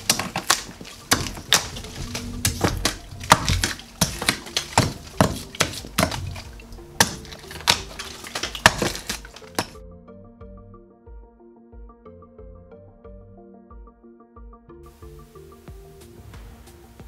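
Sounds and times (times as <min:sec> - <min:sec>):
crumbling plaster: 0:00.0 - 0:09.8
hammer striking chisel: 0:00.0 - 0:09.8.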